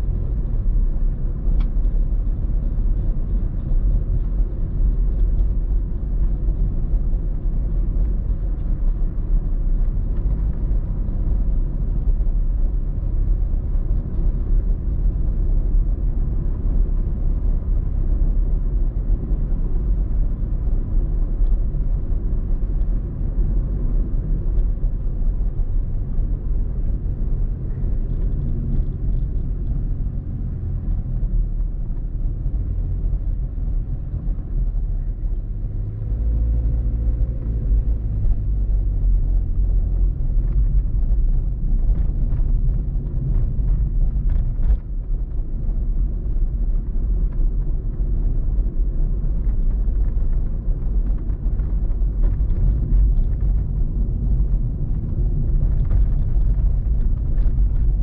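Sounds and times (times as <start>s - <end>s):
car engine and tyres rumbling: 0.0s - 58.0s.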